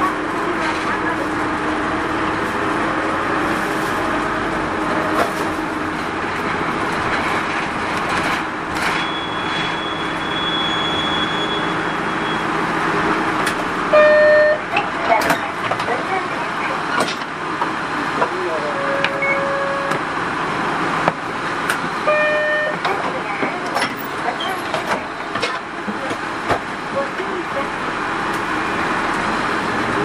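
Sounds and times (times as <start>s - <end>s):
diesel engine running: 0.0s - 30.0s
short electronic beep: 9.0s - 12.5s, 19.0s - 20.0s.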